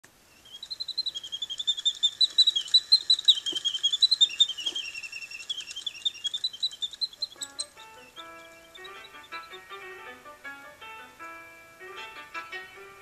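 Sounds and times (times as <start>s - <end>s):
mechanical bird warbling chirps: 0.4s - 9.7s.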